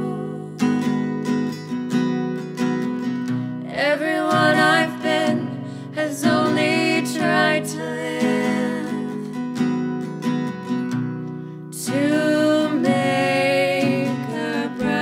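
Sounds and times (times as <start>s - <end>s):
women singing: 0.0s - 1.0s, 3.6s - 9.5s, 11.7s - 15.0s
strummed acoustic guitar: 0.0s - 15.0s.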